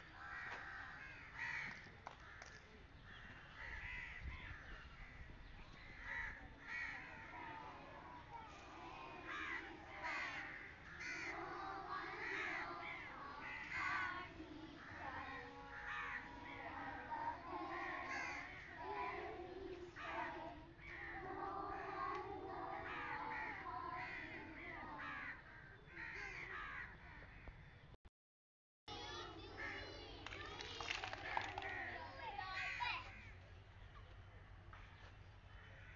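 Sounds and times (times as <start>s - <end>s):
young children chanting: 6.0s - 25.6s, 28.9s - 33.2s.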